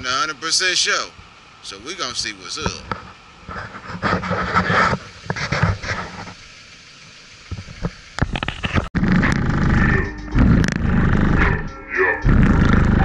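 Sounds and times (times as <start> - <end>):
indistinct noises: 1.5 - 13.0
heavy bass from subwoofer: 9.0 - 13.0.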